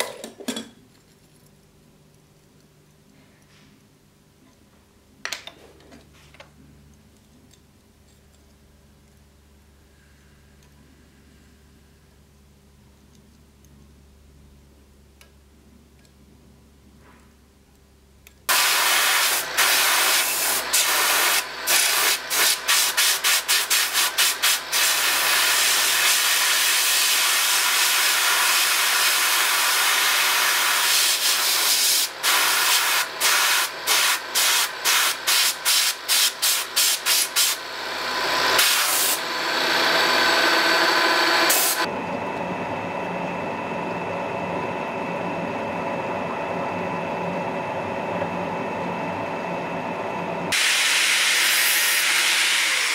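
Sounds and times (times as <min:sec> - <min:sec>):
drill press cutting steel: 0:23.9 - 0:41.9, 0:50.5 - 0:52.9
drill press humming: 0:36.6 - 0:44.9.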